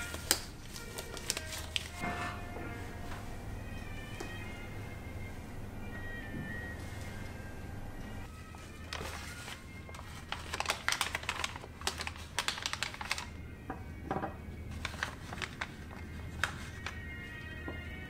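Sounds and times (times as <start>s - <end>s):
sheet crinkling and crackling: 0.0s - 2.4s, 8.5s - 13.4s, 14.7s - 17.4s
low musical drone: 0.0s - 12.2s.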